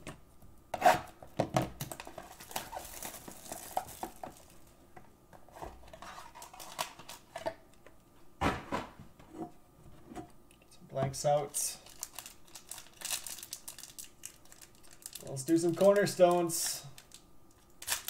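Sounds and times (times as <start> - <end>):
plastic wrap crinkling: 1.8 - 4.8, 11.7 - 18.0.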